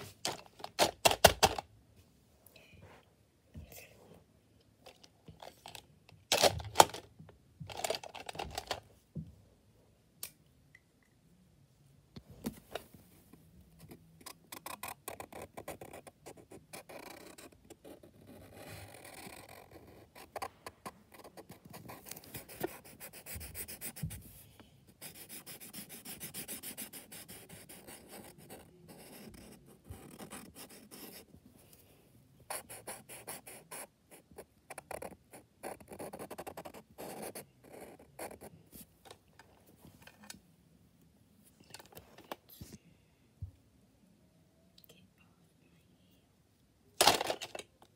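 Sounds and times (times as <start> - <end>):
marker scratching on paper: 13.9 - 24.2, 25.0 - 31.3.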